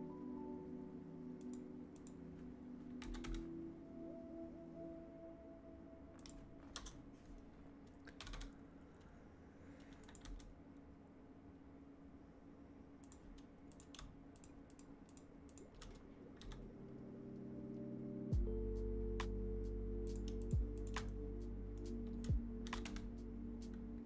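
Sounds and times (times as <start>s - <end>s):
keyboard keys clicking: 1.4s - 3.6s, 6.1s - 8.6s, 9.8s - 10.6s, 18.4s - 23.9s.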